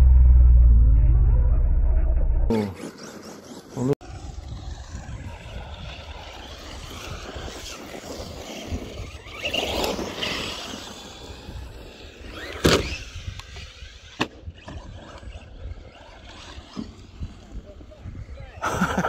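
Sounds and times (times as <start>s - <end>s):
rc truck driving over rough ground: 2.5s - 19.0s.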